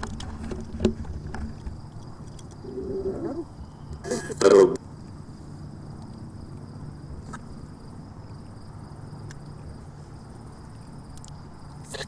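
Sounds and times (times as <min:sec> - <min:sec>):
crickets chirping: 0:00.0 - 0:12.0
low background rumble: 0:00.0 - 0:12.0
faint ticks: 0:05.9 - 0:07.5, 0:09.2 - 0:09.5, 0:10.6 - 0:12.0.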